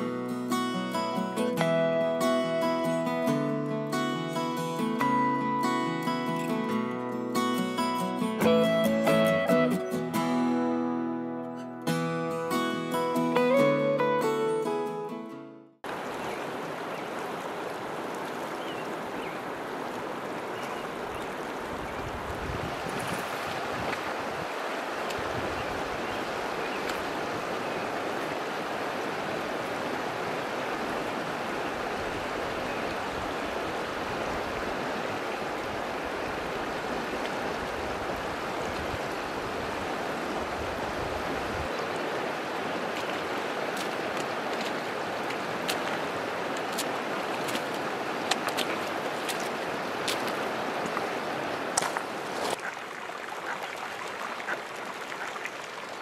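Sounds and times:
river rushing over rocks: 15.9s - 56.0s.

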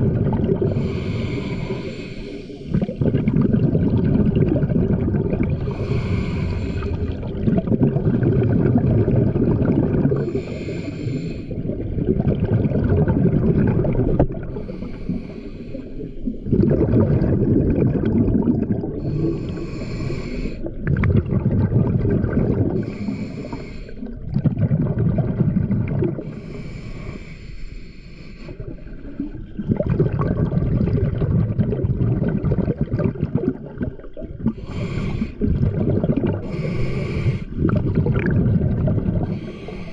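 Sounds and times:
exhaled bubbles rumbling: 0.0s - 26.6s, 28.5s - 39.9s
regulator hissing inhales: 0.7s - 2.7s, 5.7s - 7.1s, 10.2s - 11.6s, 14.6s - 16.3s, 19.0s - 20.7s, 22.8s - 24.1s, 26.2s - 28.6s, 34.6s - 35.4s, 36.4s - 37.6s, 39.2s - 39.9s.

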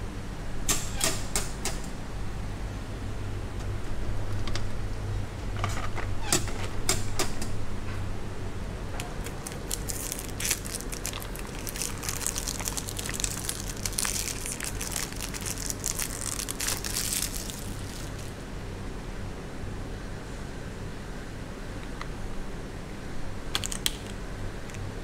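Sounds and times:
steady low hum: 0.0s - 25.0s
cardboard box crinkling and rustling: 9.4s - 18.4s.

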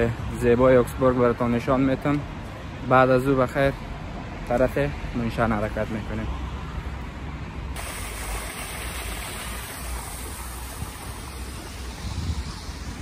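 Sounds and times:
wet-road traffic noise: 0.0s - 13.0s
rain: 7.8s - 13.0s.

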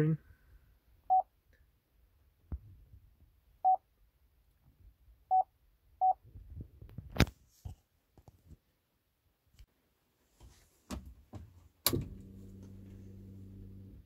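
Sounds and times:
touchscreen beeps: 5.3s - 6.2s.

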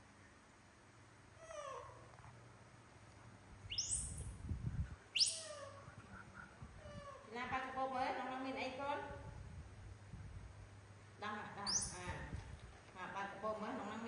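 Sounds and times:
baby monkeys squealing: 3.7s - 4.2s, 5.2s - 5.8s.

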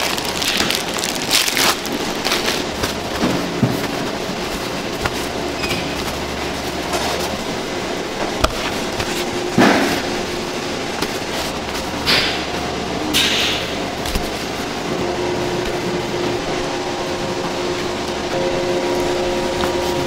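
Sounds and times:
paper towel rustling on meat: 0.0s - 12.9s, 13.8s - 14.9s
kitchen machinery hum: 0.0s - 20.0s.

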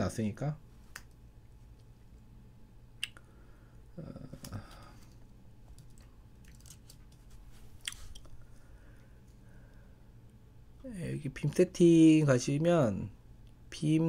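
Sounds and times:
keyboard and mouse clicks: 5.7s - 7.3s.

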